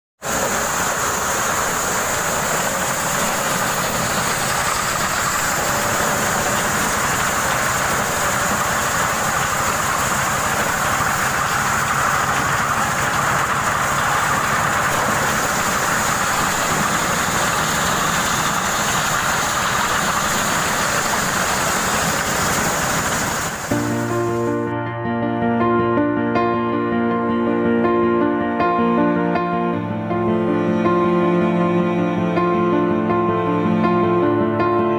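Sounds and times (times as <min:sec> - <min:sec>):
corn sheller machine running: 0:00.2 - 0:24.6.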